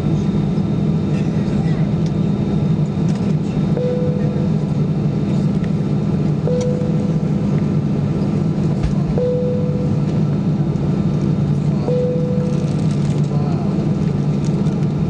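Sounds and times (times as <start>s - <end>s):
aircraft engines humming: 0.0s - 15.0s
short steady tone: 3.8s - 4.5s, 6.4s - 7.2s, 9.2s - 10.0s, 11.8s - 12.5s.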